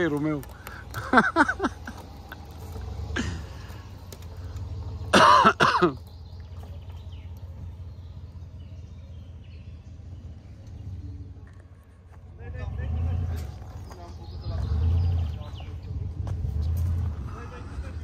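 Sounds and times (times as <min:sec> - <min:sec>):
truck engine rumbling: 0:00.0 - 0:18.0
person coughing: 0:05.1 - 0:06.0.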